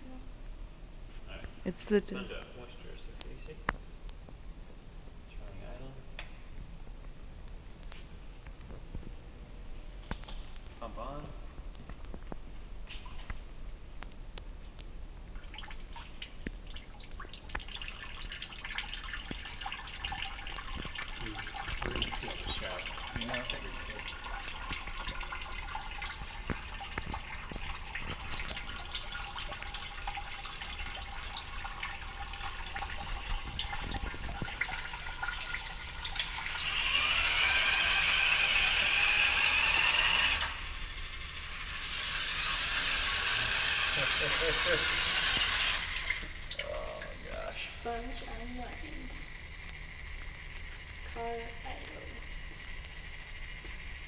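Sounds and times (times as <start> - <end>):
water trickling and dripping: 15.4 - 39.0, 41.6 - 53.8
small electric motor whining: 36.2 - 46.4.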